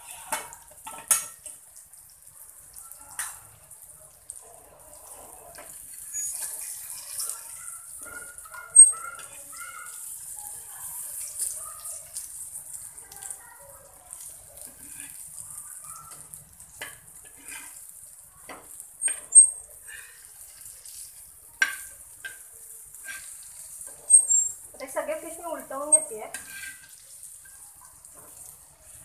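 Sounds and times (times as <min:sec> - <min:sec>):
fish sizzling in oil: 0:00.0 - 0:29.0
metal spatula scraping and clicking: 0:05.5 - 0:09.5, 0:14.1 - 0:15.2, 0:16.1 - 0:17.8, 0:18.5 - 0:19.5, 0:20.1 - 0:24.6, 0:25.9 - 0:27.6.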